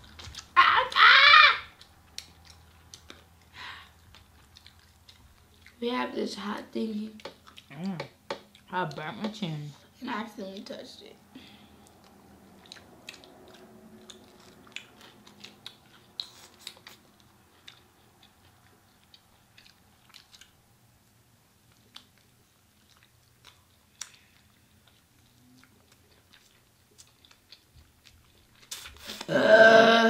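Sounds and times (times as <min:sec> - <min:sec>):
people chewing meat: 0:00.0 - 0:10.8, 0:11.4 - 0:30.0
wet smacks and clicks: 0:01.7 - 0:05.8.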